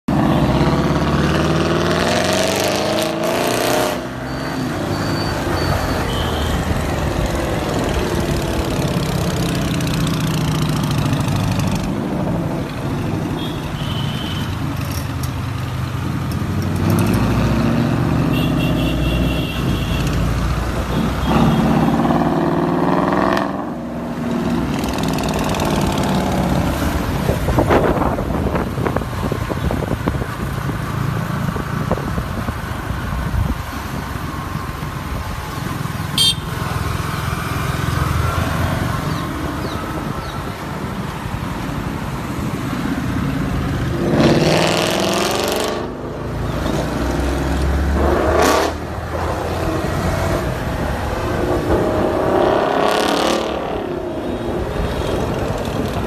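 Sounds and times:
car engine revving hard: 0:00.1 - 0:04.1, 0:43.8 - 0:46.0, 0:46.8 - 0:50.5, 0:51.2 - 0:54.0.

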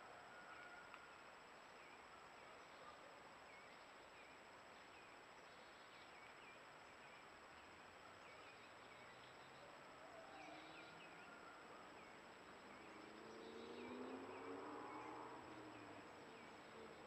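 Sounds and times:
microphone hiss: 0:00.0 - 0:10.1
insects: 0:00.0 - 0:17.0.

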